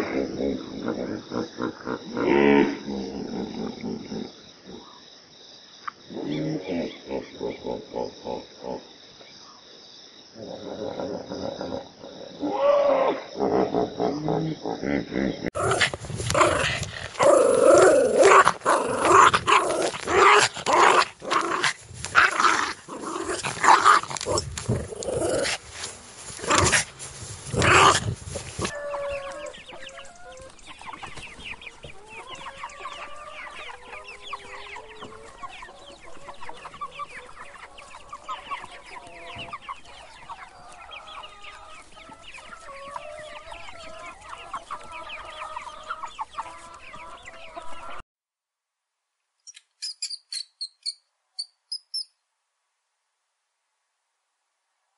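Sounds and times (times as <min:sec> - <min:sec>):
hen clucking: 0:15.5 - 0:48.0
chicks peeping: 0:25.4 - 0:48.0.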